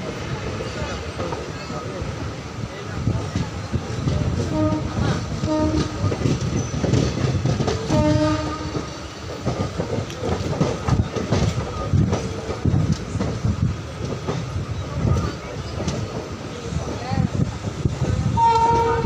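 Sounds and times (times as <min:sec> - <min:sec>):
train wheels clickety-clack: 0:00.0 - 0:19.0
locomotive horn blasts: 0:04.5 - 0:06.1, 0:07.9 - 0:08.9, 0:18.4 - 0:19.0.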